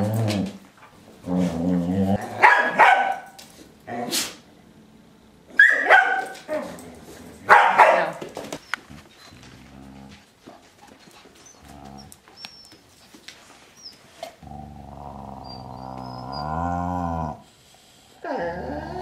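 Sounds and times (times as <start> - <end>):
dog growling: 0.0 - 0.6, 1.2 - 2.4, 8.9 - 10.3, 11.5 - 12.2, 14.2 - 17.5, 18.1 - 19.0.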